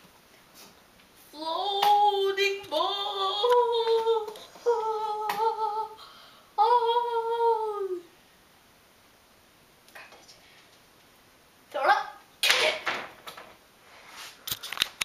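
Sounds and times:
child singing high notes: 1.4 - 6.0, 6.6 - 8.1.

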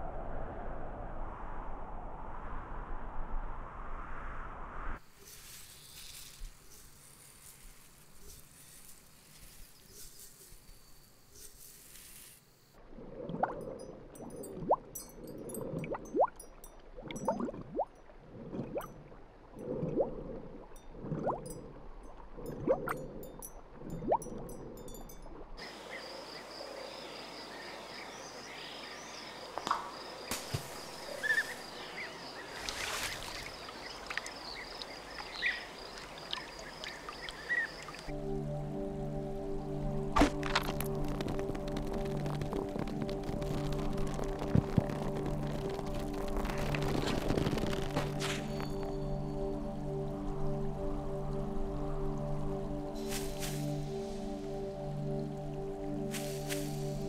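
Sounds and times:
faint high hiss: 5.0 - 12.8
high insect trill: 5.0 - 12.8.

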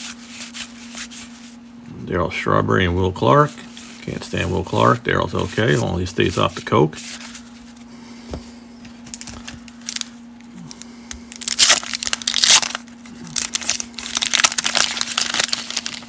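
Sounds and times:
wax paper wrapper tearing and crinkling: 9.0 - 16.0.

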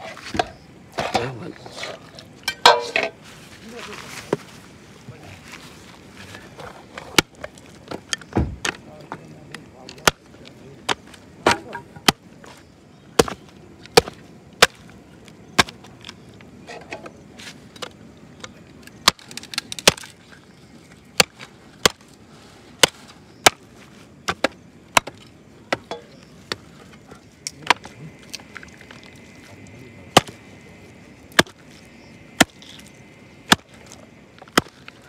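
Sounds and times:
machete chopping on wooden block: 10.9 - 12.2, 13.2 - 14.8, 15.6 - 15.8, 21.2 - 22.0, 22.8 - 23.6, 24.3 - 26.6, 30.1 - 30.4, 31.3 - 31.6, 32.4 - 32.7, 33.5 - 33.8, 34.5 - 34.8.

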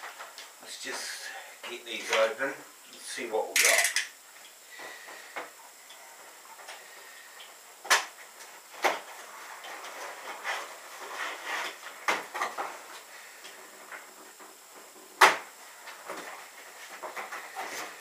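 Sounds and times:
packaging rustling and scraping: 9.0 - 12.9.

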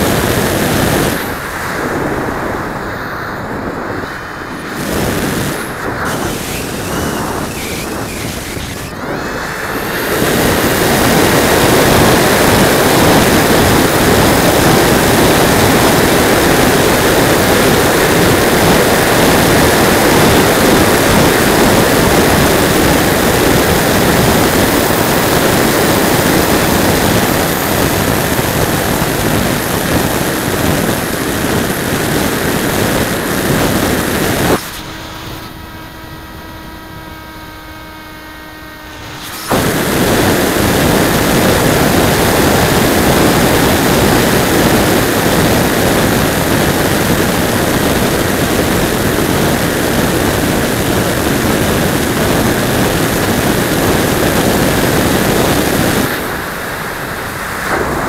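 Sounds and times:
wind rushing: 0.0 - 35.6
electric motor whine: 0.0 - 58.0.

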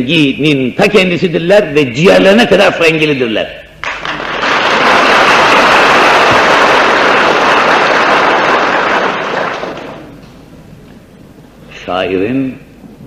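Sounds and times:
audience applauding: 3.8 - 10.2.

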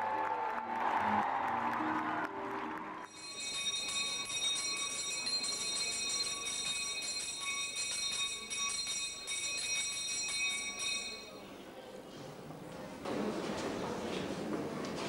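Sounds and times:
handbell ringing: 3.1 - 11.4.

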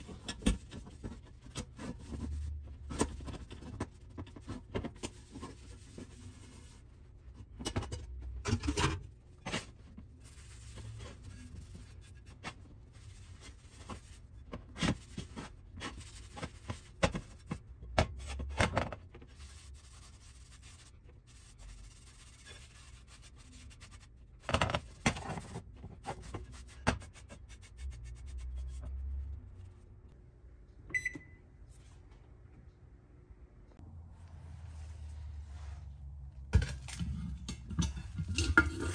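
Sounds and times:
oven control panel beep: 30.9 - 31.5.

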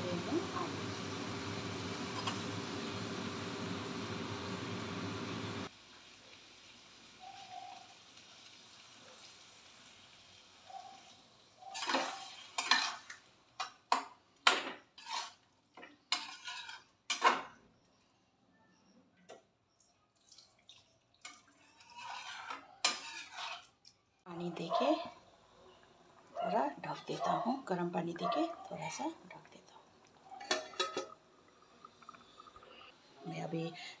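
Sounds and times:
metal ladle scraping steel pan: 15.0 - 15.4, 16.1 - 16.8, 21.6 - 23.7.

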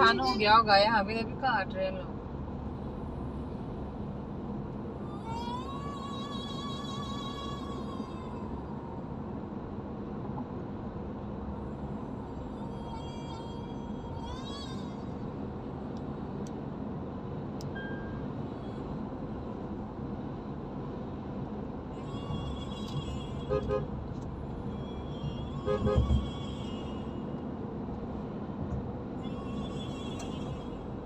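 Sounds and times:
car cabin road noise: 0.0 - 31.0
car horn double beep: 22.9 - 23.9, 25.6 - 26.3.

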